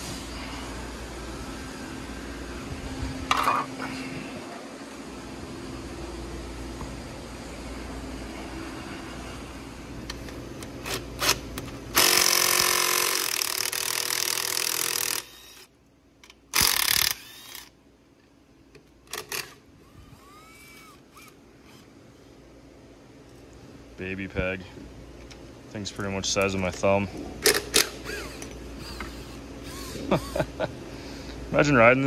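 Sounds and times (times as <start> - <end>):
power tool running: 10.7 - 15.7, 16.5 - 17.7, 27.8 - 30.4.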